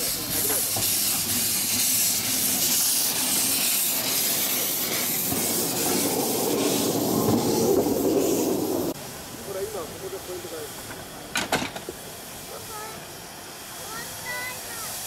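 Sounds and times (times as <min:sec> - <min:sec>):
steam hissing: 0:00.0 - 0:15.0
steam locomotive passing: 0:00.0 - 0:15.0
train cars rumbling on rails: 0:00.0 - 0:15.0.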